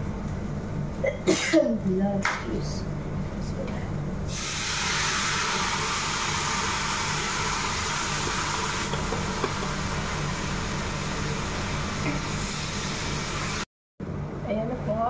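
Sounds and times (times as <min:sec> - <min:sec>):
food sizzling in a pot: 0:04.3 - 0:13.7.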